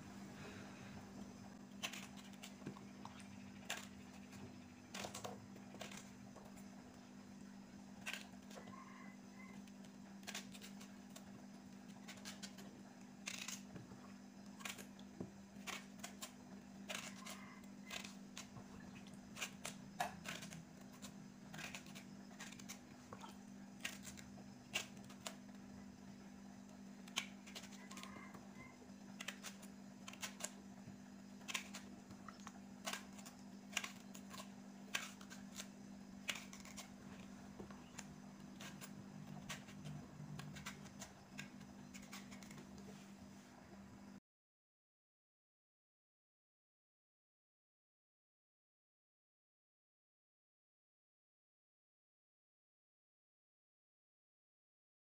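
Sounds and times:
steady low hum: 0.0 - 44.2
knife cutting bananas: 9.6 - 42.9.

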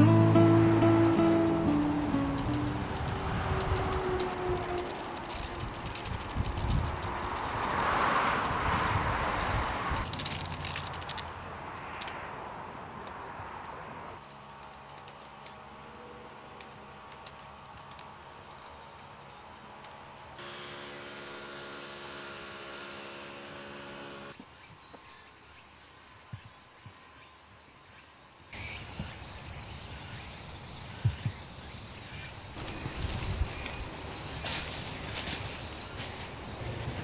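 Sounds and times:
high pulsing insect call: 0.0 - 37.0
insects buzzing and chirping: 0.0 - 37.0.

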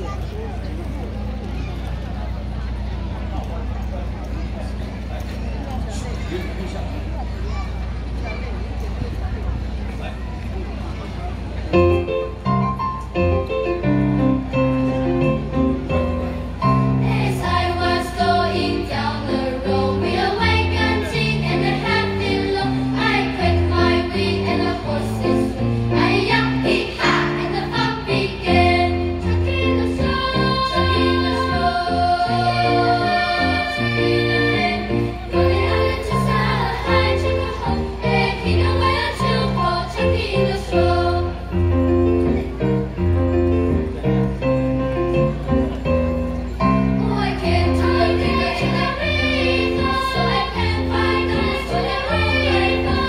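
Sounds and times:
instrumental accompaniment: 11.8 - 53.0
children's choir singing: 16.6 - 41.7, 46.6 - 53.0.

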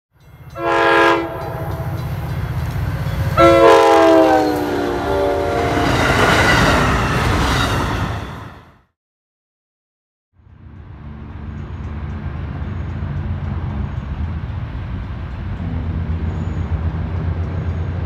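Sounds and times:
diesel train rumbling on rails: 0.1 - 8.9, 10.4 - 18.0
locomotive horn blasts: 0.5 - 2.3, 3.3 - 6.1.

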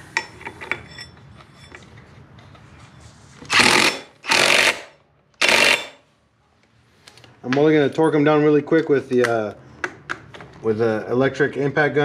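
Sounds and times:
cordless impact gun hammering: 3.5 - 6.0.

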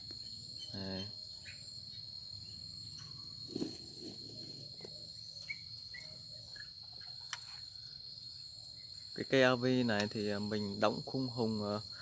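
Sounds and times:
faint bird chirps: 0.0 - 9.4
crickets trilling: 0.0 - 12.0.

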